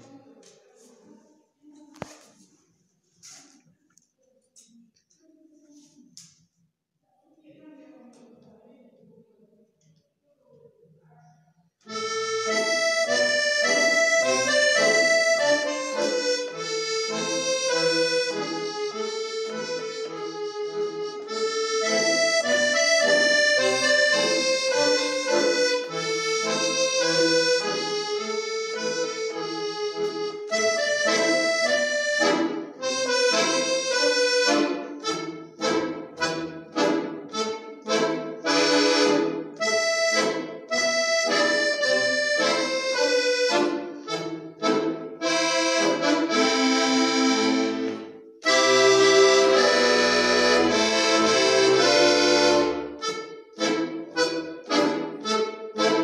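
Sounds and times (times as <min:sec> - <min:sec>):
accordion melody: 0:11.8 - 0:56.0.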